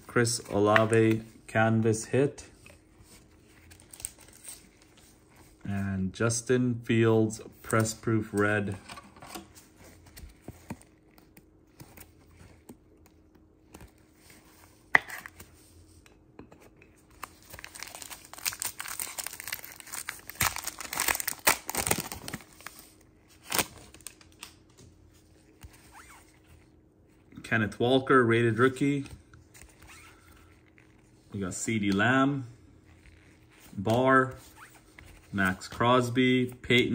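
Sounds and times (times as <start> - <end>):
plastic wrapper tearing and crinkling: 3.6 - 5.0, 17.1 - 24.8.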